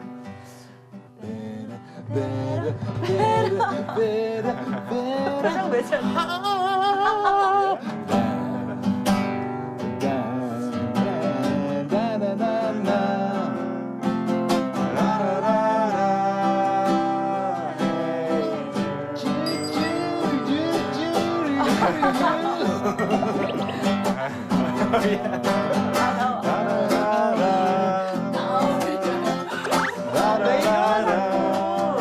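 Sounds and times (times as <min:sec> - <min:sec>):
classical guitar strumming chords: 0:07.8 - 0:32.0.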